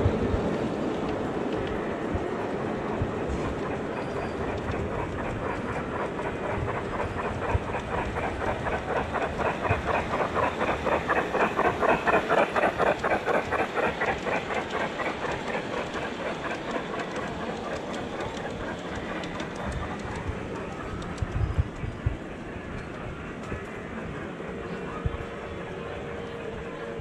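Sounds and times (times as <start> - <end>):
model steam locomotive chuffing: 0.0 - 27.0
model train wheels rumbling on track: 0.0 - 27.0.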